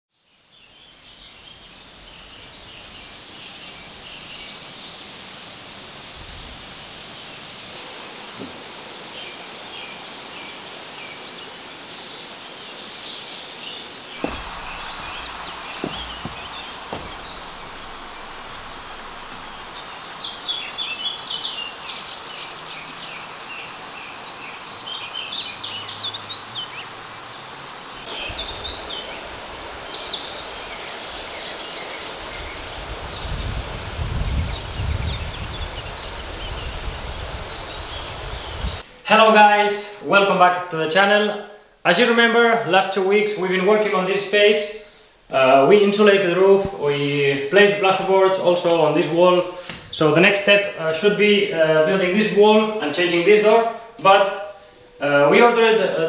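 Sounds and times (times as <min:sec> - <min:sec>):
birds chirping and singing: 0:00.4 - 0:05.2, 0:09.2 - 0:39.0
steady background hush: 0:13.5 - 0:24.5
dull knocks: 0:14.2 - 0:20.6.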